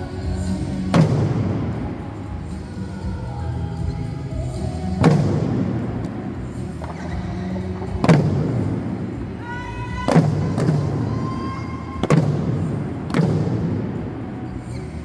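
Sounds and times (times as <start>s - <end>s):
recorded backing music: 0.0s - 15.0s
drums struck in unison: 0.9s - 2.0s, 5.0s - 6.0s, 10.0s - 11.1s.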